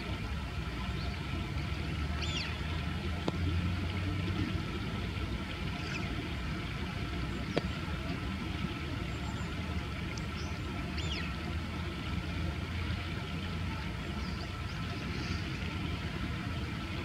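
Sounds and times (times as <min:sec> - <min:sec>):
distant traffic rumble: 0:00.0 - 0:17.0
birds chirping: 0:10.2 - 0:11.4.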